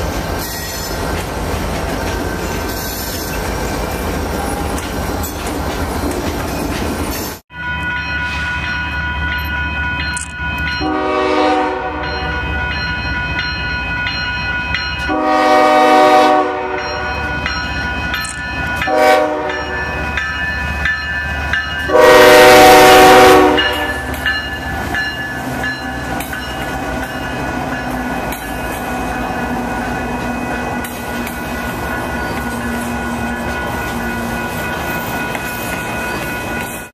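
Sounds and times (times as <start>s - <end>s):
train cars rumbling past: 0.0s - 36.9s
locomotive air horn blasts: 10.8s - 12.4s, 15.1s - 17.0s, 18.9s - 19.8s, 21.9s - 24.1s.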